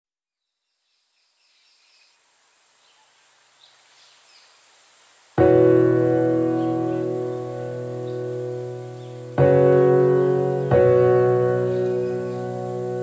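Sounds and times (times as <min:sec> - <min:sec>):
faint outdoor ambience: 0:00.4 - 0:13.0
piano chord ringing: 0:05.4 - 0:13.0.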